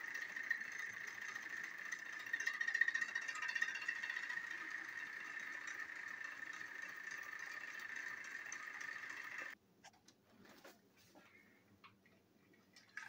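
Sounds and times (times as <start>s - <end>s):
toy train motor whine: 0.0s - 9.6s.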